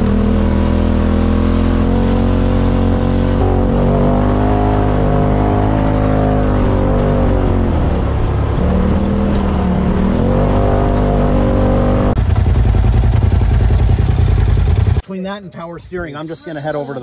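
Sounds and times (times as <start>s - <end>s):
utility vehicle engine running: 0.0s - 15.0s
engine with fast even throb: 12.1s - 15.0s.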